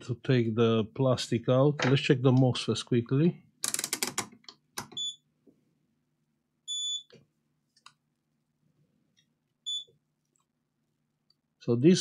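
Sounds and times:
multimeter high beeps: 0:05.0 - 0:05.2, 0:06.7 - 0:07.1, 0:09.7 - 0:09.9.

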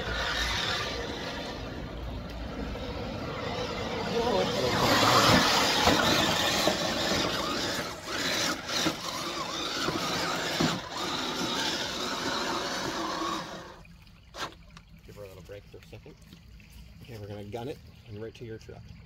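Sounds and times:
electric motors whining: 0:00.0 - 0:14.6
water splashing: 0:00.0 - 0:19.0.

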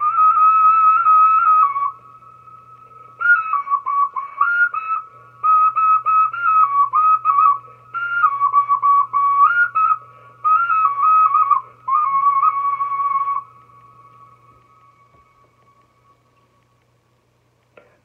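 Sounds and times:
clay flute melody: 0:00.0 - 0:02.6, 0:03.2 - 0:16.2
player breathing: 0:10.0 - 0:10.4.

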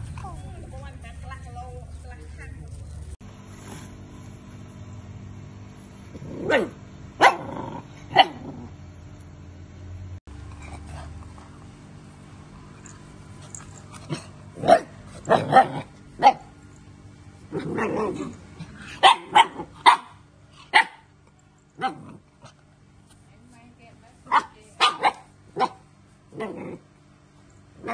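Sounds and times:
puppy growling: 0:06.1 - 0:08.8, 0:12.8 - 0:16.5, 0:17.5 - 0:19.8, 0:21.8 - 0:22.6, 0:26.3 - 0:27.0
puppy barking: 0:06.4 - 0:08.5, 0:14.6 - 0:16.5, 0:18.8 - 0:21.1, 0:24.3 - 0:26.6.

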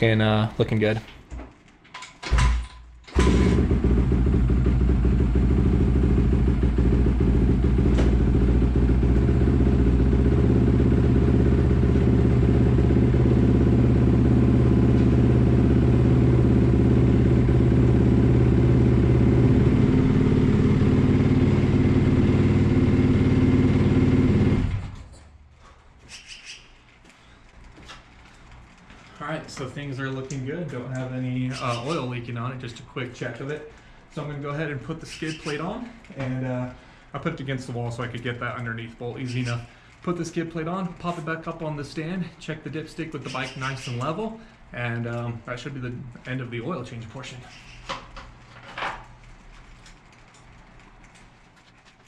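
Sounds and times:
dirt bike engine idling: 0:03.2 - 0:24.9.

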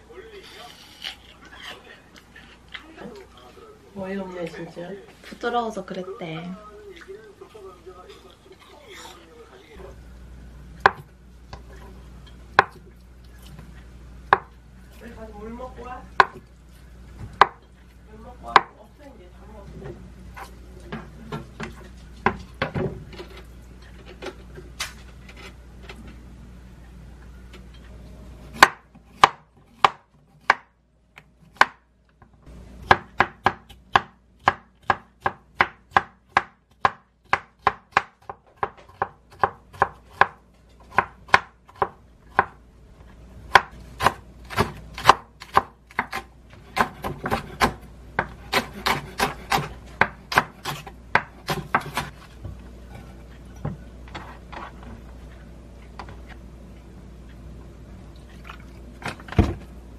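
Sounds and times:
knife chopping on wooden board: 0:12.6 - 0:12.8, 0:14.3 - 0:14.5, 0:16.2 - 0:16.4, 0:17.2 - 0:17.6, 0:18.5 - 0:18.8, 0:28.5 - 0:30.7, 0:31.5 - 0:31.8, 0:32.8 - 0:42.6, 0:43.5 - 0:52.1.

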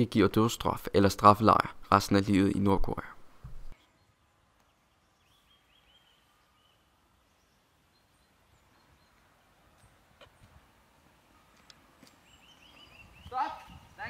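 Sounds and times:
faint bird chirps: 0:03.8 - 0:10.5, 0:12.2 - 0:14.0.

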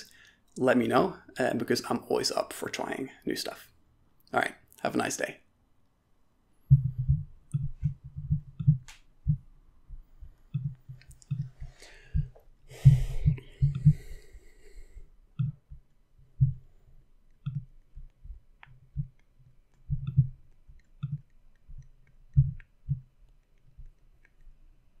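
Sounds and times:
soft low thumps: 0:06.6 - 0:19.2, 0:19.8 - 0:23.2
faint clicks: 0:17.2 - 0:24.6.

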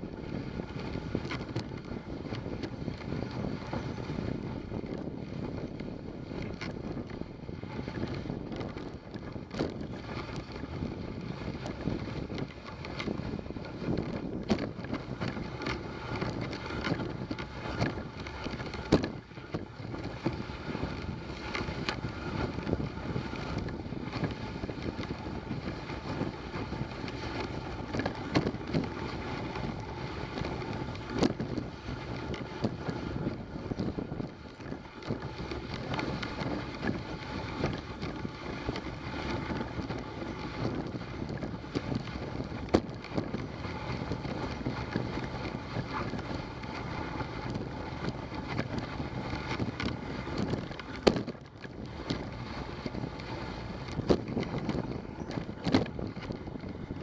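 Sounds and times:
sled runners rushing over snow: 0:00.0 - 0:57.0
wind on microphone: 0:00.0 - 0:57.0
sled knocking: 0:00.9 - 0:57.0.

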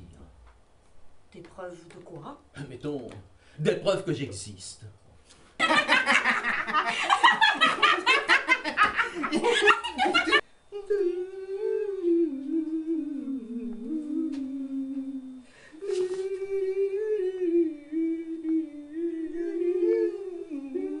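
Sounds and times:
person humming: 0:10.7 - 0:21.0.

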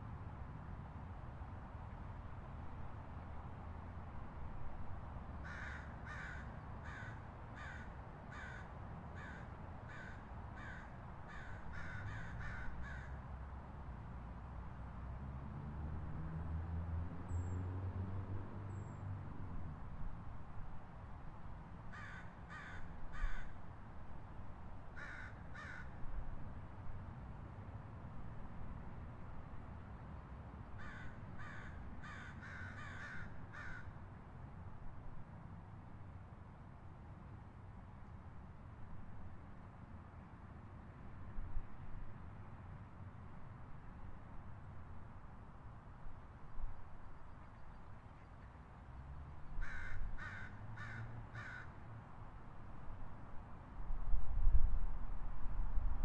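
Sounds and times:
low city rumble: 0:00.0 - 0:56.0
crow cawing: 0:05.4 - 0:13.2, 0:21.9 - 0:23.6, 0:25.0 - 0:26.0, 0:30.8 - 0:34.0, 0:49.6 - 0:51.8.

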